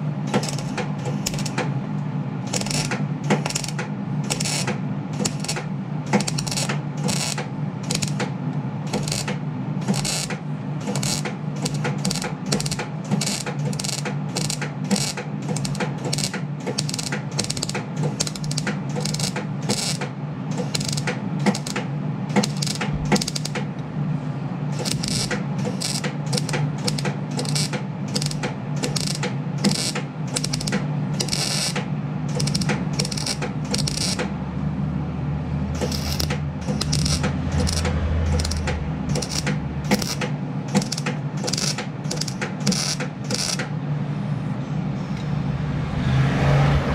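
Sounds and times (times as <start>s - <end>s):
steady low hum: 0.0s - 46.0s
welding arc crackling: 0.4s - 1.6s, 2.5s - 5.6s, 6.2s - 8.2s, 8.9s - 20.0s, 20.6s - 21.8s, 22.4s - 23.6s, 24.8s - 34.3s, 35.8s - 43.6s.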